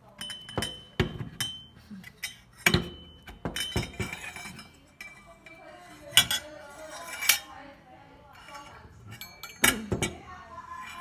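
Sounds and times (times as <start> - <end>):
metal bar clinking on tabletop: 0.1 - 7.5.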